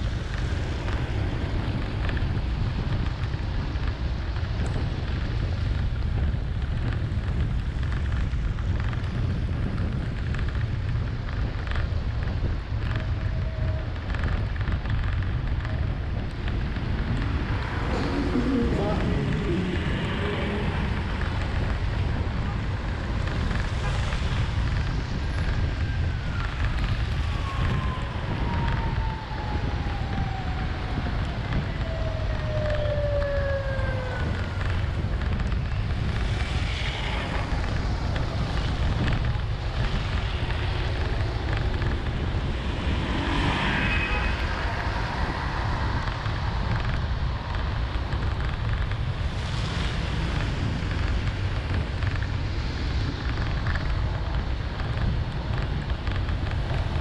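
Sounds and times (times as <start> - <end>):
vehicle driving through heavy rain: 0.0 - 57.0
downward gliding tone: 17.2 - 21.2.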